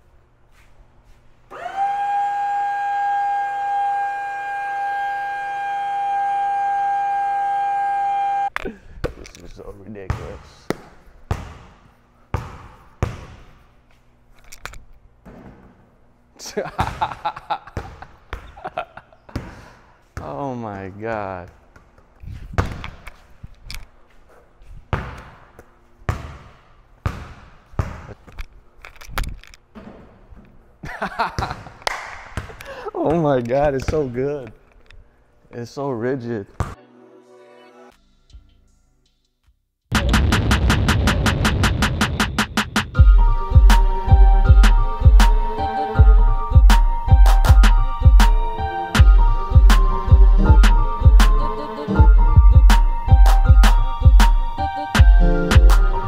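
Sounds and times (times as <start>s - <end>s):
basketball bouncing on concrete: 10.0s - 13.6s, 22.5s - 23.0s, 24.9s - 28.2s.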